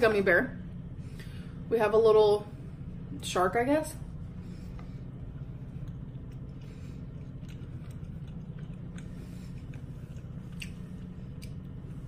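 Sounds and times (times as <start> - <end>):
steady low hum: 0.0 - 12.0
gummy candy being chewed: 5.6 - 11.9.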